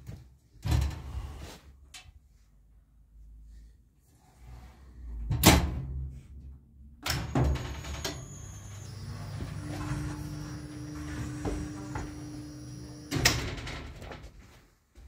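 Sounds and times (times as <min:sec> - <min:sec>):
lift motor humming: 0:07.5 - 0:13.4.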